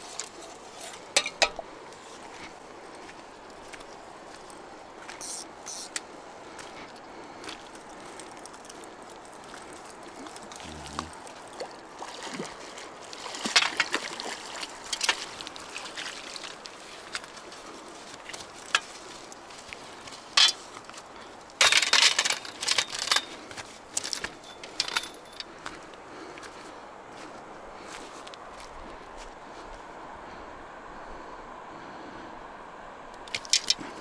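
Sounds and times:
water splashing: 0:07.4 - 0:20.0
fish thrashing and rattling: 0:07.4 - 0:20.7, 0:21.4 - 0:25.5, 0:33.2 - 0:33.9.

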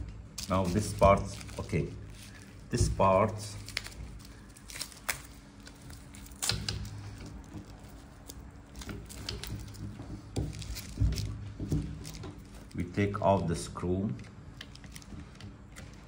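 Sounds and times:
plastic wrapping rustling: 0:00.0 - 0:16.0.

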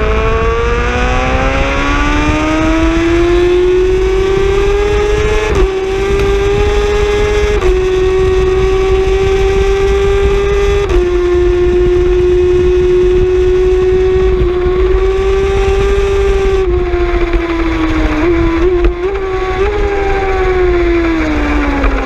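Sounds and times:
motorcycle engine at high revs: 0:00.0 - 0:22.0
wind rush on microphone: 0:00.0 - 0:22.0.

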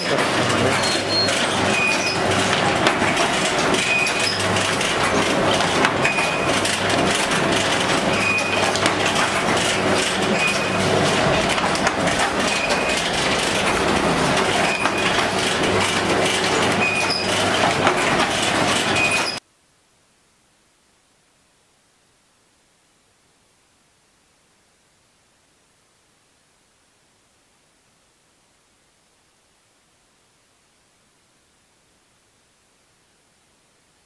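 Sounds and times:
machine mechanical clatter: 0:00.0 - 0:19.4.

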